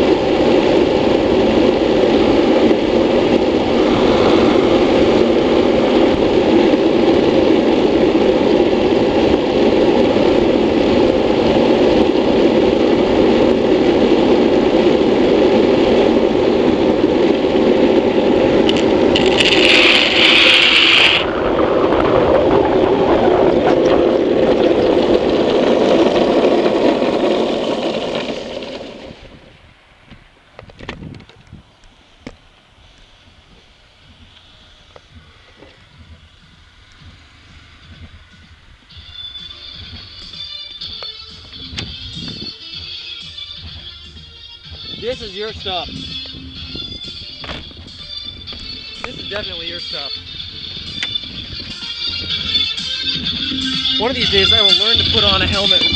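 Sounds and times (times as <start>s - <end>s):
wind over microphone: 0.0s - 42.9s, 43.6s - 55.9s
wheels rolling on asphalt: 0.0s - 55.9s
high-pitched scrape: 19.1s - 21.3s.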